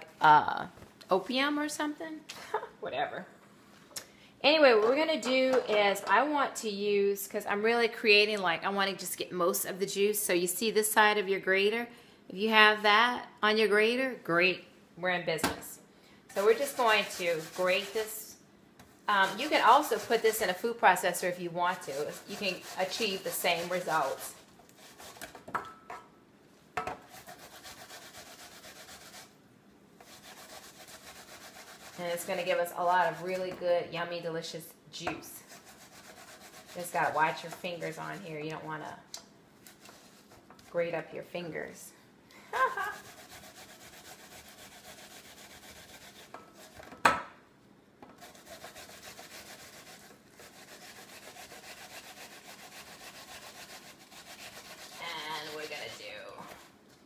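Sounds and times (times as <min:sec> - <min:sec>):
pear grated on metal grater: 0:16.3 - 0:18.2, 0:19.1 - 0:25.4, 0:27.1 - 0:29.4, 0:30.0 - 0:33.6, 0:35.4 - 0:38.2, 0:42.8 - 0:46.9, 0:48.2 - 0:56.8.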